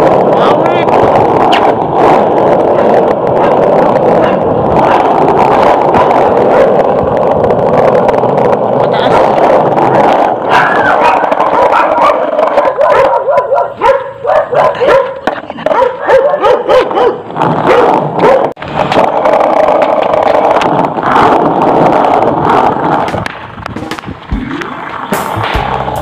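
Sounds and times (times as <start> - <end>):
dogs barking and yelping: 2.7 - 6.9, 9.1 - 18.6.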